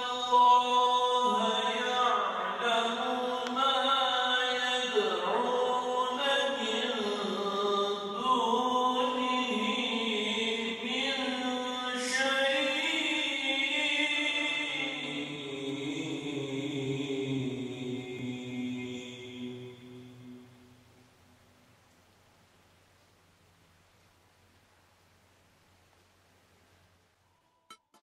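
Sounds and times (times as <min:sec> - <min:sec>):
man chanting: 0:00.0 - 0:20.4.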